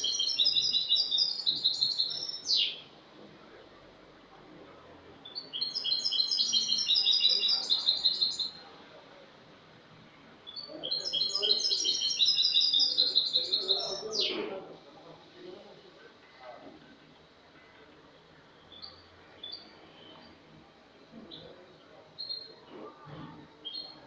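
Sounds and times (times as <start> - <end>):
goldfinch singing: 5.3 - 8.6, 10.5 - 14.3.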